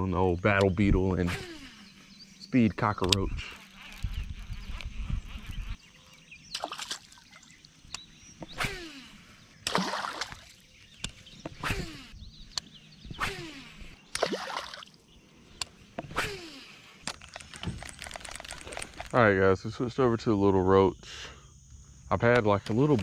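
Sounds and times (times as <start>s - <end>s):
lure splashing on water: 6.5s - 7.9s, 9.6s - 10.7s, 14.1s - 15.0s.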